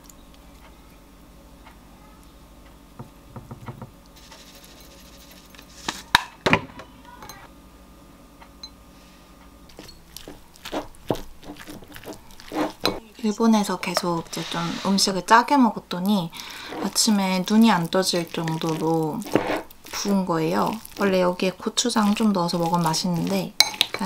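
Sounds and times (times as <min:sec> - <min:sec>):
metal spoon scraping ceramic bowl: 0:10.7 - 0:13.0, 0:16.7 - 0:17.0, 0:19.2 - 0:19.7.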